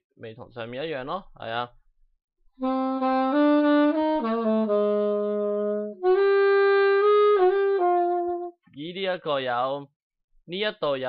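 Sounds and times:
saxophone melody: 2.6 - 8.6.

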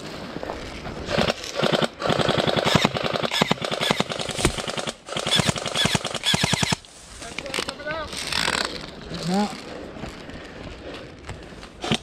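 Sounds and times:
airsoft rifle automatic fire: 1.1 - 6.8.

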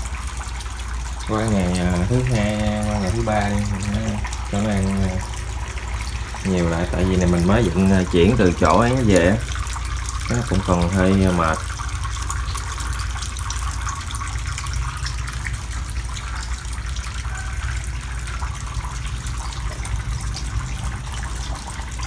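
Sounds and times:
water running and splashing: 0.0 - 22.0.

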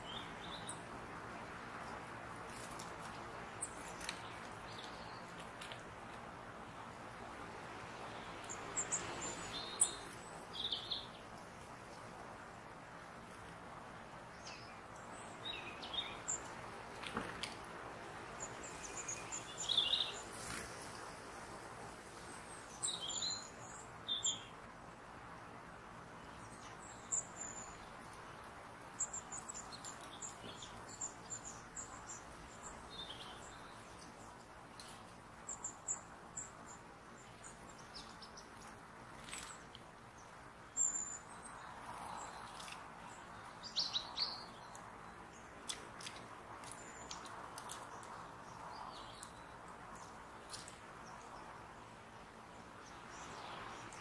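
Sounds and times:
faint steady hiss: 0.0 - 54.0
birds chirping: 8.1 - 11.4, 18.4 - 21.0, 26.3 - 51.8.

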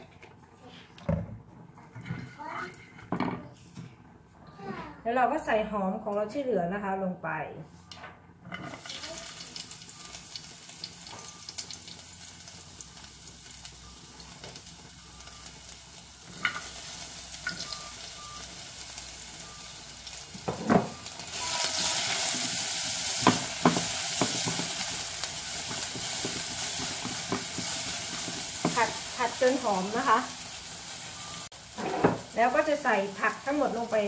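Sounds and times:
onion sizzling in oil: 8.7 - 34.0.

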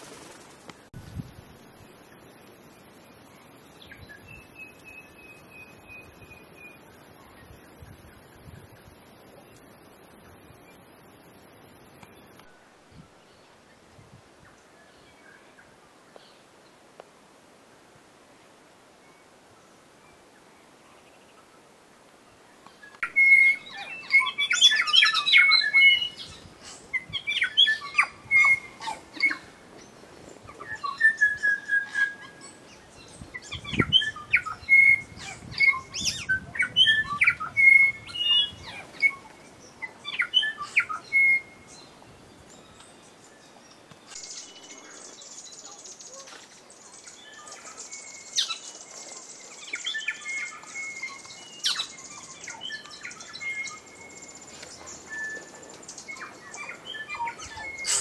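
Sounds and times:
steady high hiss: 0.0 - 58.0
birds singing: 22.8 - 58.0.

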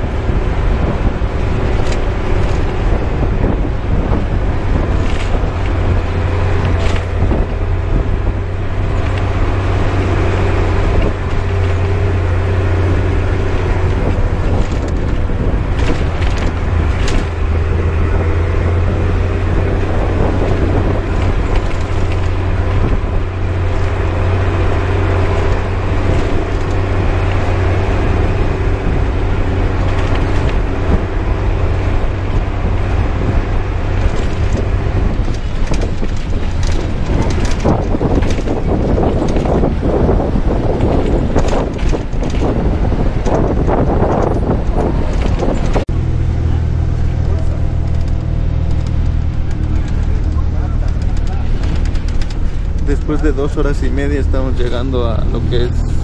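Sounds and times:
bus engine droning: 0.0 - 56.0
road noise: 0.0 - 56.0
sharp rattling clicks: 47.0 - 55.7.

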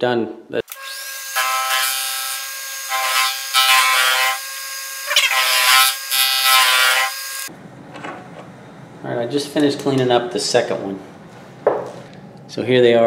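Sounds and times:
cutter cutting metal: 0.6 - 7.5.

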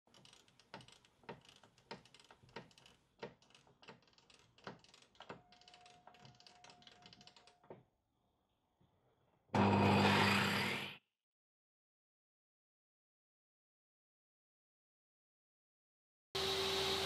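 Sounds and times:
sharp mechanical clicking: 0.1 - 7.6.

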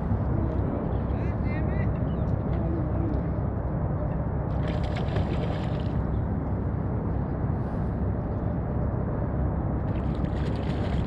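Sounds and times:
low outdoor rumble: 0.0 - 11.0.

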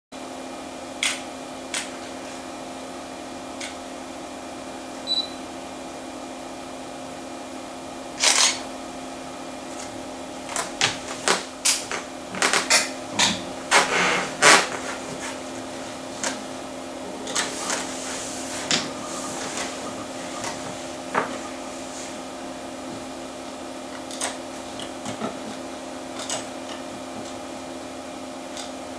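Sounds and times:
electrical hum: 0.2 - 28.9
hard disk seek ticks: 3.6 - 3.8, 15.6 - 27.5, 28.4 - 28.9.

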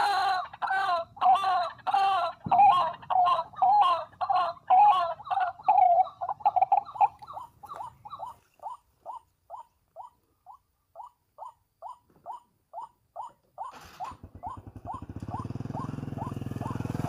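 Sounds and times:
waterhen calling: 0.0 - 17.0.

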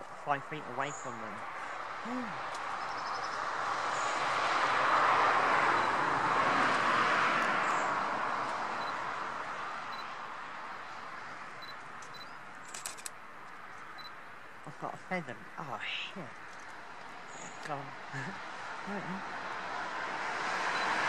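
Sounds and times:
car tyre noise passing: 0.0 - 12.0, 16.4 - 21.0
camera shutter clicks: 12.7 - 13.2.

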